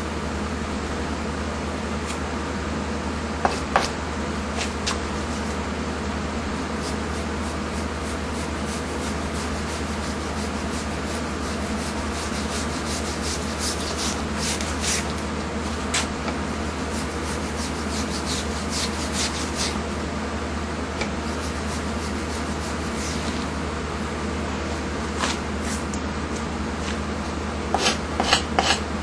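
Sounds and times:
knife scraping fish skin: 6.8s - 15.2s, 16.9s - 19.8s, 27.8s - 28.8s.

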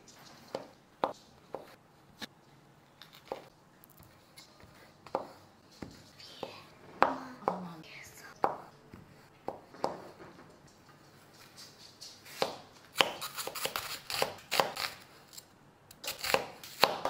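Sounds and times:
knife slicing onion on cutting board: 4.6s - 7.1s, 12.2s - 15.4s, 16.0s - 17.0s.

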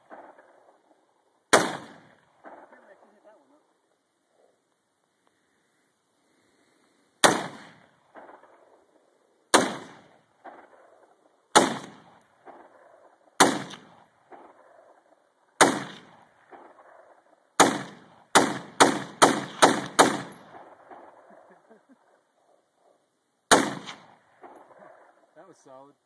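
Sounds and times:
rifle shots: 0.0s - 0.9s, 1.5s - 3.4s, 7.2s - 21.7s, 23.5s - 25.3s
gunshot echo off hills: 0.0s - 3.5s, 7.2s - 21.8s, 23.5s - 25.5s.

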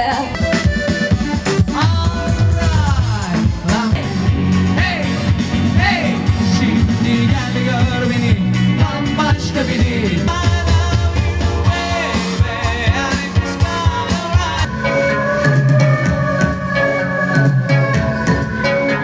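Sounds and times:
steady drum beat: 0.0s - 14.8s
electric guitars: 0.0s - 19.0s
person singing: 1.4s - 19.0s.

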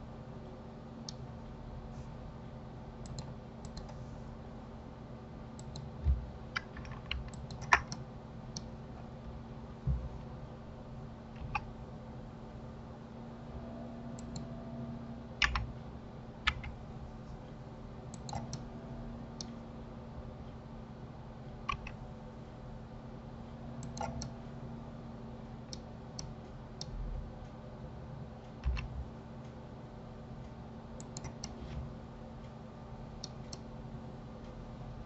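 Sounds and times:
steady low hum: 0.0s - 35.0s
mouse and keyboard clicks: 6.6s - 8.0s, 11.4s - 11.7s, 15.4s - 15.7s, 18.1s - 18.6s, 21.6s - 22.0s.

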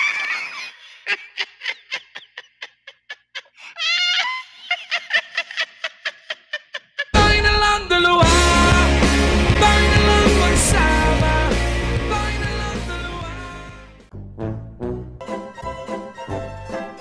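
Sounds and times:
man laughing hard: 0.0s - 7.5s
loud rock music: 7.2s - 14.1s.

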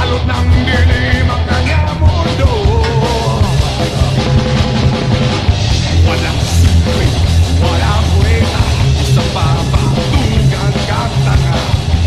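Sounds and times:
heavy bass beat: 0.0s - 12.0s
rock music with singing: 0.0s - 12.0s.

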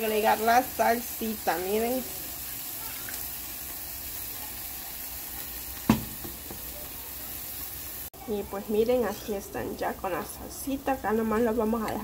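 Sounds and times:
salsa sizzling in a hot pan: 0.0s - 12.0s
sharp knock: 5.9s - 6.5s.

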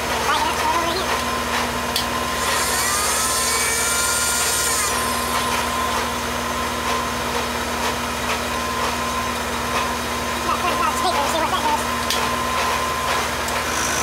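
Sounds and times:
mill-drill motor whine: 2.0s - 14.0s
cutter hissing and squealing on metal: 2.3s - 6.3s, 13.6s - 14.0s.

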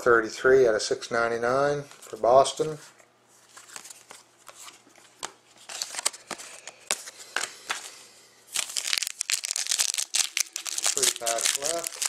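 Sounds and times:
cards clicking and rustling: 3.5s - 7.9s, 8.5s - 12.0s
foil wrapper crinkling: 8.5s - 12.0s.

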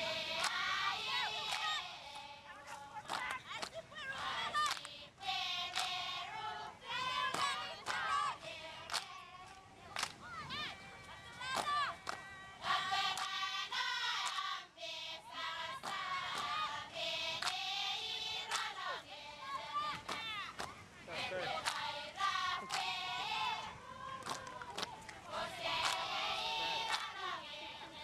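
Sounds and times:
women singing in unison: 0.0s - 10.6s, 11.4s - 20.5s, 21.1s - 28.0s
sharp handclaps: 0.4s - 3.8s, 4.6s - 5.0s, 5.7s - 6.0s, 7.3s - 8.1s, 8.8s - 10.2s, 11.5s - 12.3s, 13.1s - 13.4s, 14.2s - 14.4s, 15.8s - 16.6s, 17.4s - 17.6s, 18.4s - 18.8s, 20.0s - 20.8s, 21.5s - 21.9s, 22.6s - 23.0s, 24.2s - 25.2s, 25.8s - 27.3s.

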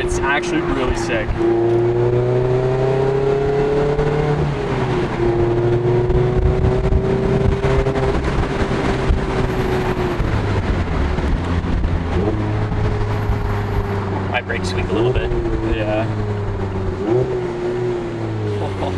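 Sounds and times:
wind noise: 0.0s - 14.3s
car engine revving: 0.0s - 18.9s.

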